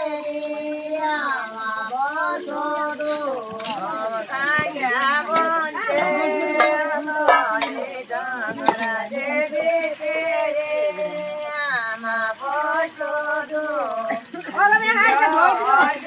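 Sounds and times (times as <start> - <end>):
woman singing: 0.0 - 16.0.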